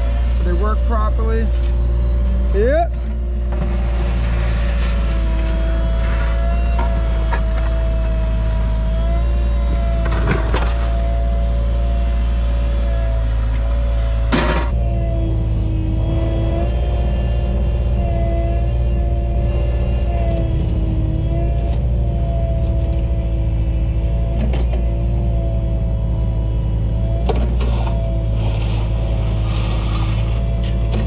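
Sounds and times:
diesel engine humming: 0.0 - 31.0
hydraulic whine: 0.0 - 31.0.

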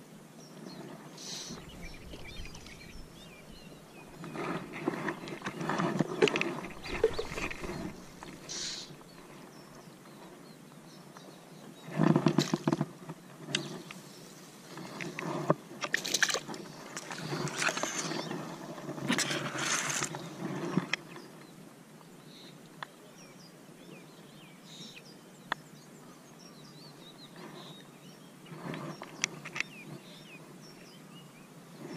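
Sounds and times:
grass rustling: 0.8 - 9.6
fish splashing in shallows: 1.6 - 9.1, 15.9 - 18.2.

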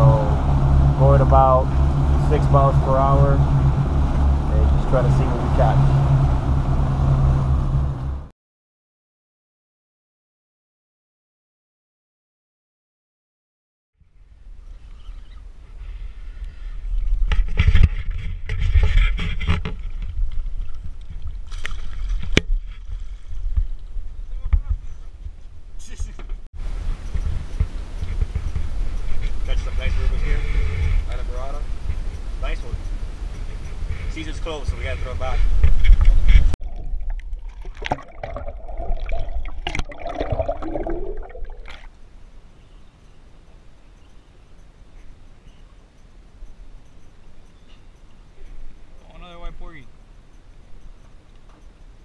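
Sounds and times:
wavering hum: 0.0 - 8.3
wind rumble on microphone: 0.0 - 8.3, 14.0 - 41.5
water splashing against boat hull: 17.4 - 24.0, 36.3 - 42.0
muffled underwater gurgling: 36.6 - 41.9.

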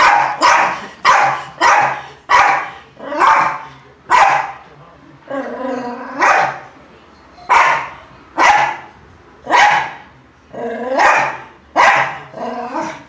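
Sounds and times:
small dog barking: 0.0 - 4.6, 6.2 - 6.6, 7.5 - 8.9, 9.5 - 10.0, 10.9 - 12.2.

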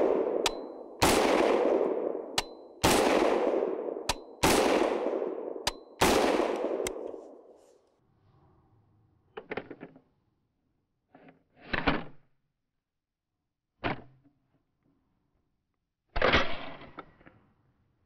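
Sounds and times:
rifle metal clicks and clacks: 0.0 - 1.6, 2.3 - 3.4, 4.0 - 4.9, 5.6 - 7.3.

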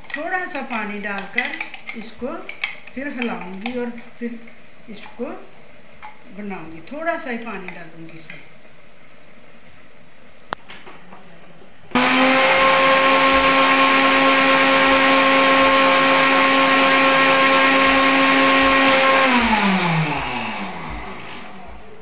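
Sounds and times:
mixer grinder motor running: 11.9 - 22.0.

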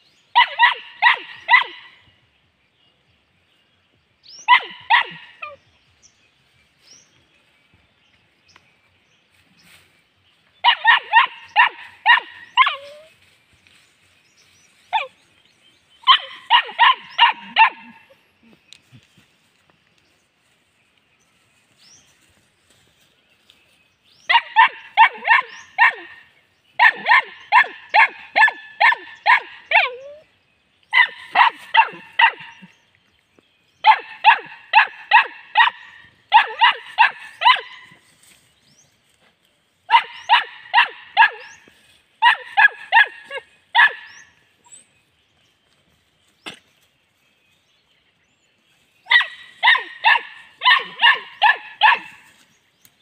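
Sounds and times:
young dog yapping: 16.0 - 18.2, 30.9 - 32.7, 39.9 - 41.6, 42.2 - 44.1, 49.1 - 52.3.

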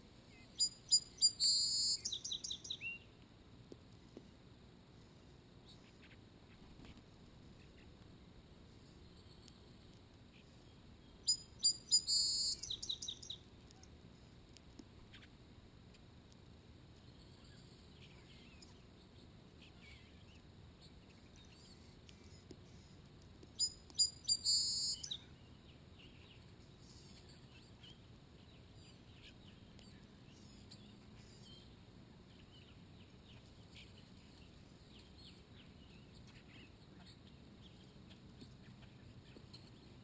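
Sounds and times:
songbirds chirping faintly: 0.0 - 40.0
loud bird calls: 0.4 - 3.0, 11.2 - 13.4, 23.6 - 40.0.

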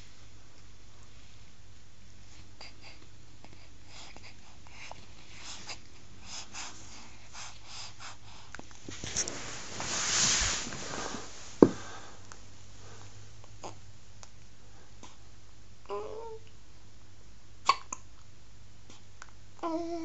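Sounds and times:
baby snuffling breaths: 2.4 - 12.2
breathy rustling: 4.1 - 13.2.

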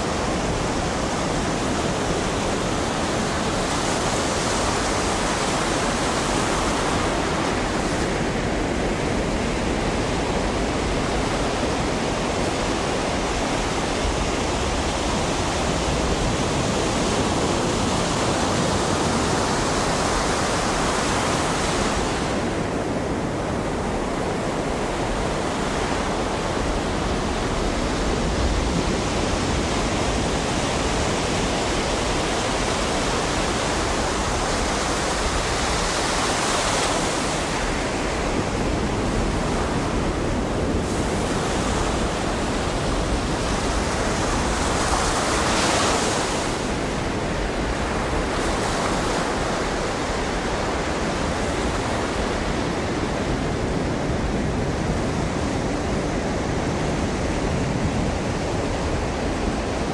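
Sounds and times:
ocean waves breaking: 0.0 - 59.9.

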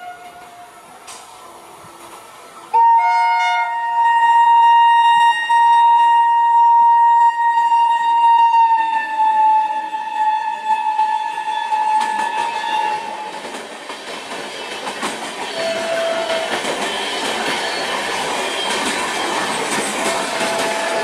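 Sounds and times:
locomotive horn blast: 0.0 - 0.9, 2.7 - 13.3, 15.5 - 16.6, 20.0 - 21.0
rumble of passing train coaches: 0.0 - 21.0.

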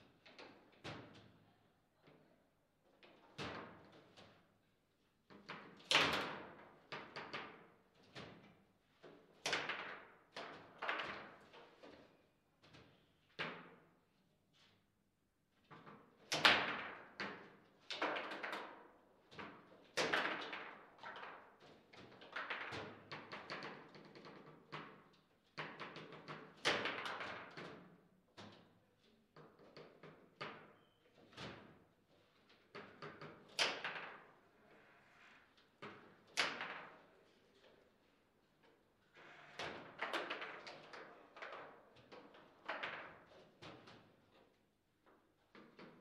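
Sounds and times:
foosball hitting plastic figures: 35.9 - 37.0.

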